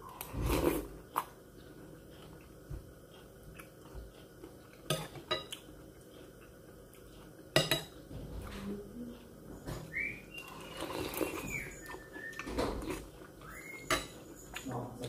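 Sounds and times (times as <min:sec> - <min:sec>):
cutlery clinking on dishes: 0:04.8 - 0:05.6, 0:07.5 - 0:08.0, 0:13.8 - 0:14.7.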